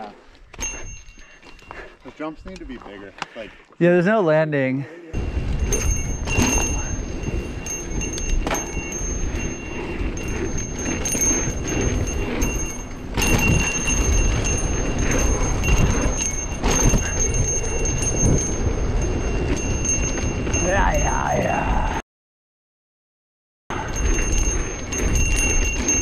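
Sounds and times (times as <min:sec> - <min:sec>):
freewheel hub buzzing: 0:05.2 - 0:20.6, 0:23.7 - 0:26.0
wind on microphone: 0:05.2 - 0:22.0.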